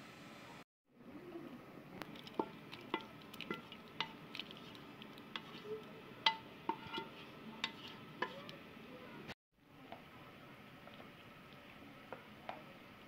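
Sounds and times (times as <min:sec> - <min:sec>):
spatula clinking on dishes: 0:02.1 - 0:04.6, 0:05.3 - 0:08.6.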